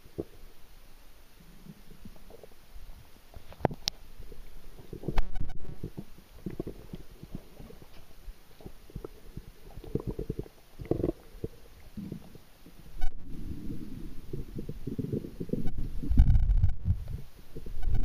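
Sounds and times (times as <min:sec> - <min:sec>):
underwater rumbling of moving water: 0:01.3 - 0:18.0.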